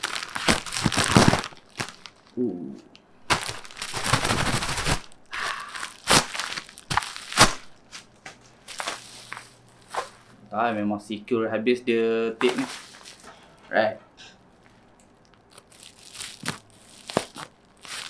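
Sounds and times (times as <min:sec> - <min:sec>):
bubble wrap crinkling: 0:00.0 - 0:02.4, 0:03.2 - 0:10.3, 0:12.4 - 0:13.3, 0:15.2 - 0:18.0.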